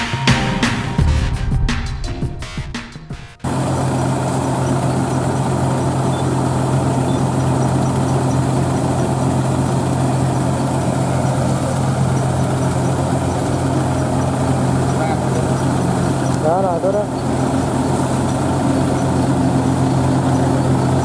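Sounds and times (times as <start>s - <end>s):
auger unloading grain: 3.4s - 21.0s
diesel engines running: 3.4s - 21.0s.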